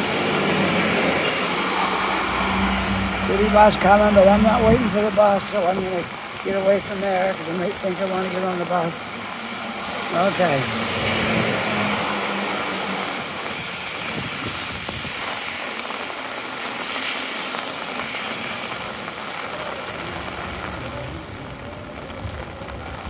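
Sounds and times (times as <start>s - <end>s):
bus engine hum: 0.0s - 5.5s
heavy rain downpour: 0.0s - 23.0s
wet traffic: 0.0s - 23.0s.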